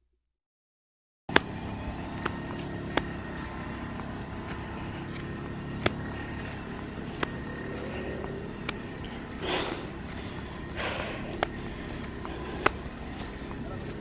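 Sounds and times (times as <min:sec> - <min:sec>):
outdoor background noise: 0:01.3 - 0:14.0
sandals on stone slabs: 0:07.0 - 0:14.0.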